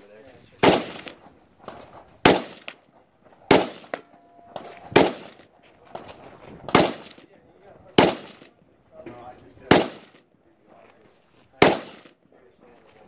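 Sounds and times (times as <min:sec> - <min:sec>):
rifle shots with ringing tail: 0:00.6 - 0:05.6, 0:06.7 - 0:07.2, 0:07.9 - 0:08.6, 0:09.7 - 0:10.2, 0:11.6 - 0:12.1.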